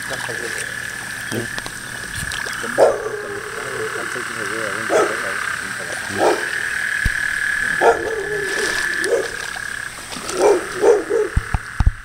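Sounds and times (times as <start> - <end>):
deep frog croaks: 0.0 - 12.0
frogs trilling chorus: 0.0 - 12.0.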